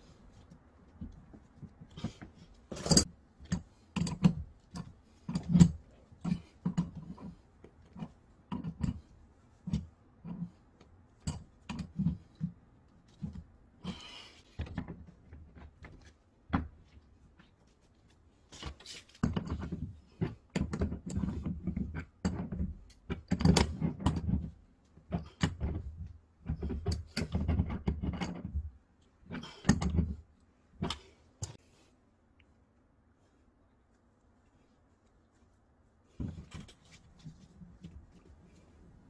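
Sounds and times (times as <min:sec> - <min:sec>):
clothing rustling: 0:33.2 - 0:39.0.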